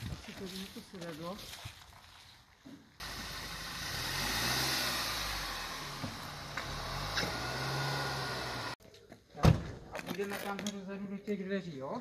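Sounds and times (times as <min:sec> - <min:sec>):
car engine running: 0:03.0 - 0:08.8.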